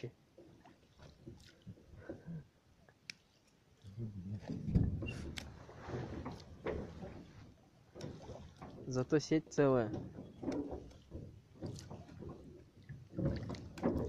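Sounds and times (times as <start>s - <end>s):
watery rush: 3.8s - 14.0s
low mumbling voice: 3.9s - 4.5s
heavy low thump: 4.3s - 5.2s
clicks and knocks of handling: 9.9s - 12.5s.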